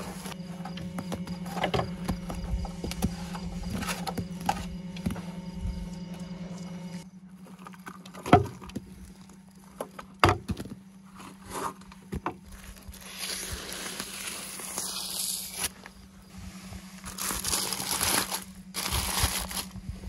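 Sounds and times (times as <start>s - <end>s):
aluminium foil crinkling: 12.5s - 15.8s, 17.0s - 19.8s
crumbling chunks: 17.1s - 19.8s.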